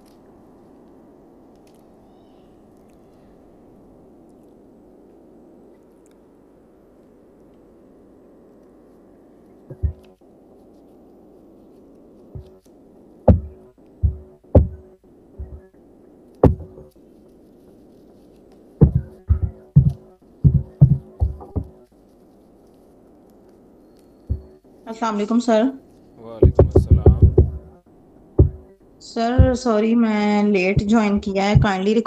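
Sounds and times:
faint held tone: 0.0 - 17.0, 22.6 - 32.0
low steady hum: 0.0 - 32.0
loud low thumps: 9.7 - 10.0, 13.3 - 14.8, 16.4 - 16.9, 18.8 - 21.7, 26.4 - 27.8, 28.4 - 29.8.

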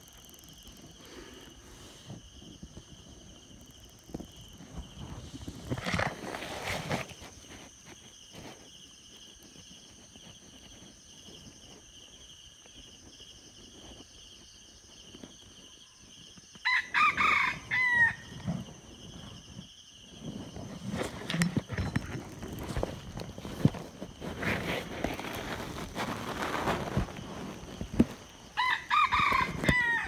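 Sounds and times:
rooster crowing: 16.6 - 18.4, 28.5 - 30.0.

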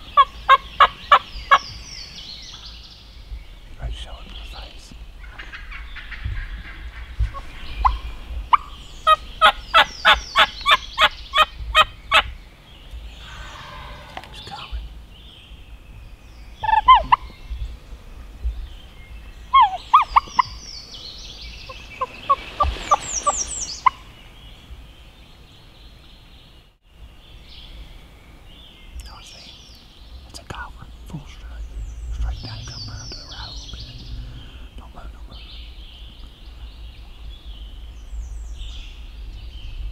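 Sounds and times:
turkey gobbling: 16.6 - 17.2, 19.5 - 20.5
turkey calling: 16.6 - 17.3, 19.5 - 20.6, 21.7 - 24.1.

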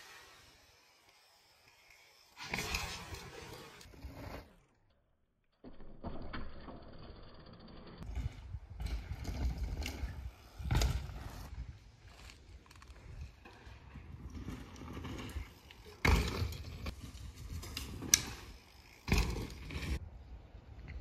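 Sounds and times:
bike rattling: 0.0 - 4.6, 5.7 - 20.0
bike tyres crunching on dirt: 0.0 - 4.6, 8.0 - 20.0.

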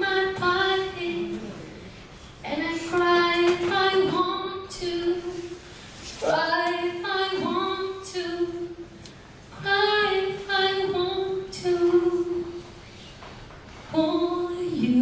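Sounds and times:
woman singing unaccompanied: 0.0 - 1.7, 2.4 - 5.6, 6.3 - 8.8, 9.6 - 12.6, 13.9 - 15.0.

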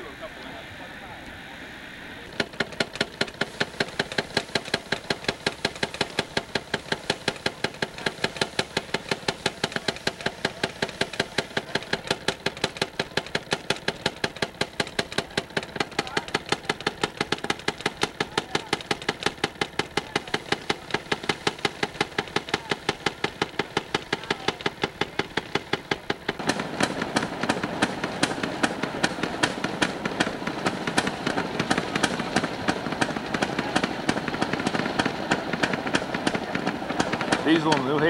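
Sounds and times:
diesel locomotive idling: 0.0 - 38.0
small engine idling: 2.0 - 38.0.

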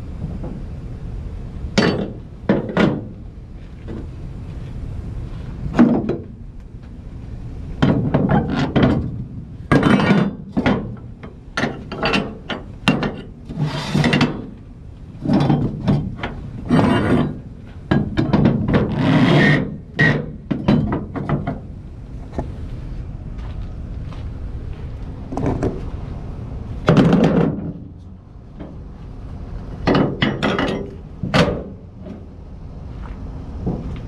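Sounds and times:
sharp metal knocks: 1.8 - 3.2, 7.8 - 14.6, 15.2 - 21.7, 26.8 - 28.0, 29.8 - 32.2
metal rubbing on metal: 13.5 - 14.4.

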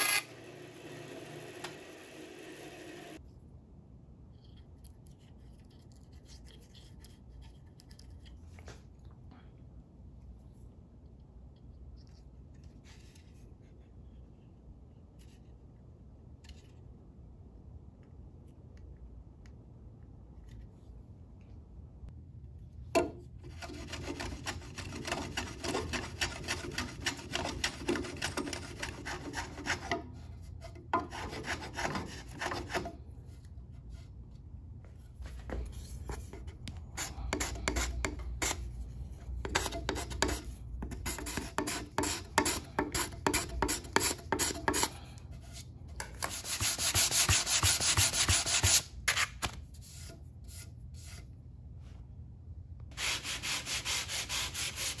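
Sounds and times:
sanding block rubbing wood: 31.0 - 32.9, 46.2 - 48.8, 53.0 - 55.0.

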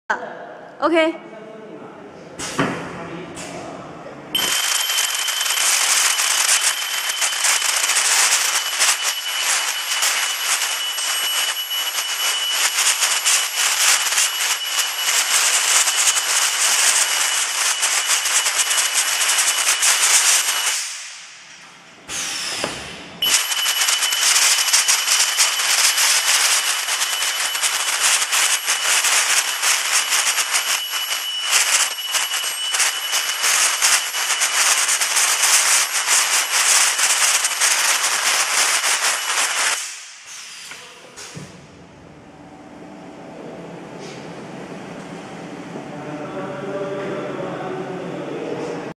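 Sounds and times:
welding machine crackling hiss: 4.4 - 22.5, 23.2 - 40.7
high whine: 4.4 - 40.2.

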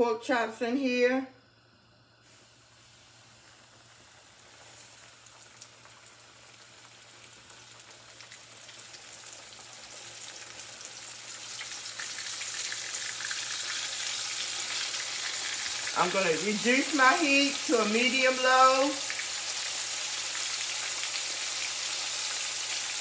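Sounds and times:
meat sizzling in hot oil: 2.2 - 23.0
oil crackles: 3.4 - 17.6.

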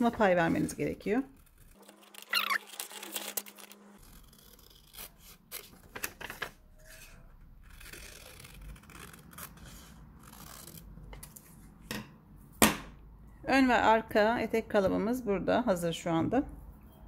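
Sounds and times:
paper rustling: 1.8 - 7.2
scissors snipping paper: 7.6 - 10.8.

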